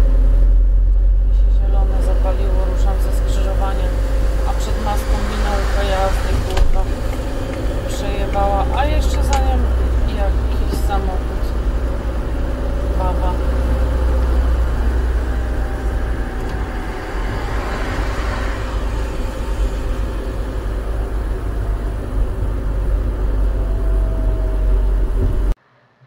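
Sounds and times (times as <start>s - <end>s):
car engine and road rumble: 0.0s - 25.7s
tyres hissing on wet road: 3.8s - 21.6s.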